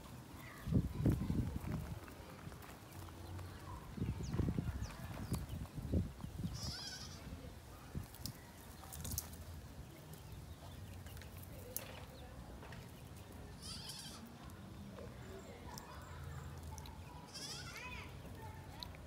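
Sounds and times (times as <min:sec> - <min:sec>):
goat bleating: 0:06.6 - 0:07.2, 0:13.6 - 0:14.3, 0:17.3 - 0:17.9.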